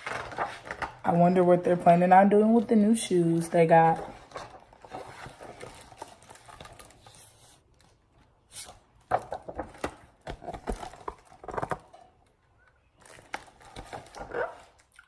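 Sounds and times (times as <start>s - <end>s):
book being handled: 3.8s - 11.8s.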